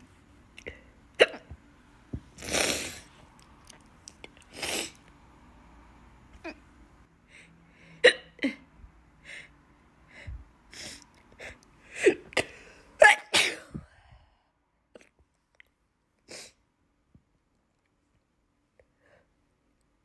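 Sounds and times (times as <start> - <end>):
woman sneezing: 12.0 - 13.8.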